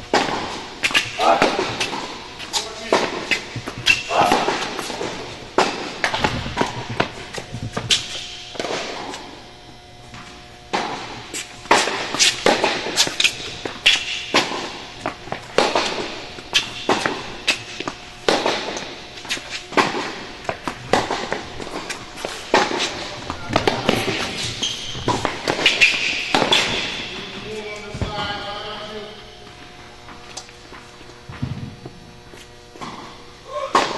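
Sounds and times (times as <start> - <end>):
tennis ball hitting racket: 0.1 - 9.2, 10.7 - 28.2
tennis ball bouncing on court: 2.8 - 9.3, 10.1 - 28.4.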